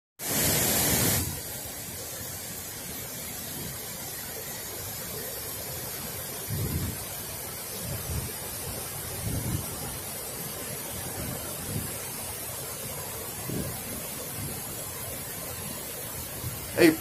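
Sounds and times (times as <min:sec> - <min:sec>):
loud hiss: 0:00.2 - 0:04.7, 0:12.3 - 0:17.0
water rushing over spillway: 0:00.2 - 0:17.0
wind buffeting microphone: 0:06.5 - 0:07.0, 0:09.2 - 0:09.8.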